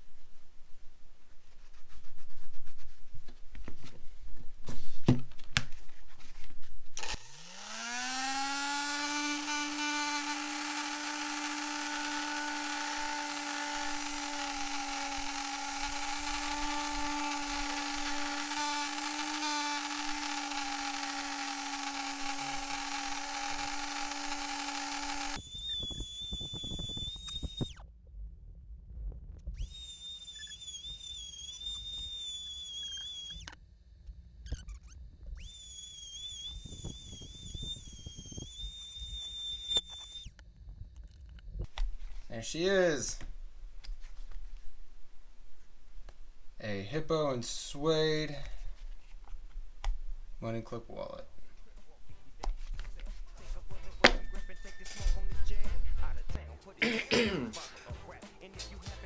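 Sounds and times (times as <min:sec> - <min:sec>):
rotary tool spinning: 0:07.0 - 0:27.8, 0:29.6 - 0:33.6, 0:34.5 - 0:40.4
high wavering whine: 0:34.5 - 0:40.4.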